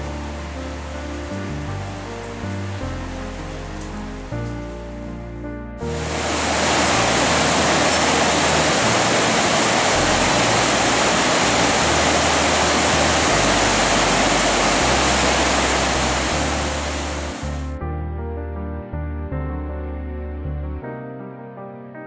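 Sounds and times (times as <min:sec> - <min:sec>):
river rushing over boulders: 0:00.0 - 0:03.6, 0:05.9 - 0:17.7.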